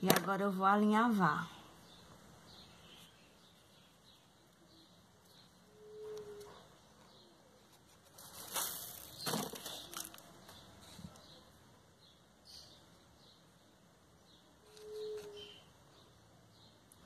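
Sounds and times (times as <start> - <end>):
ribbon rustling and crinkling: 7.6 - 11.0.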